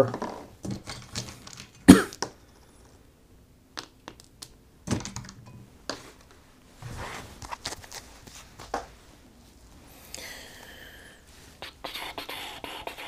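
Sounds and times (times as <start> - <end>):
cards rustling: 7.4 - 8.7.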